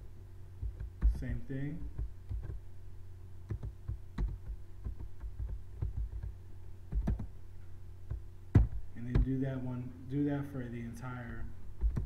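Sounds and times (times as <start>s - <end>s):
low electrical hum: 0.0s - 12.0s
keyboard keystroke clicks: 6.9s - 7.3s.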